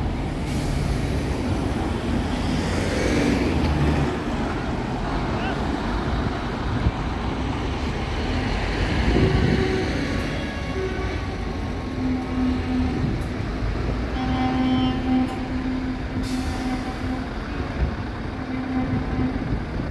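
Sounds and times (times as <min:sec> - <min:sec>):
lorry diesel engines rumbling: 0:00.0 - 0:19.9
air horn blasts: 0:09.1 - 0:13.3, 0:14.1 - 0:19.5.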